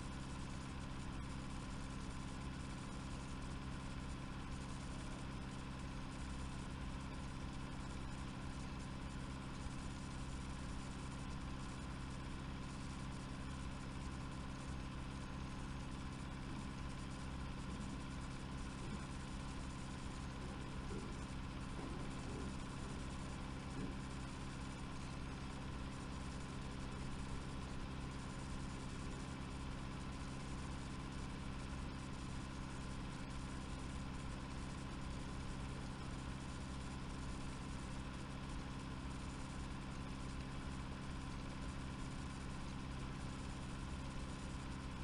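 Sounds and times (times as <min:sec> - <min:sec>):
steady low hum: 0:00.0 - 0:33.8.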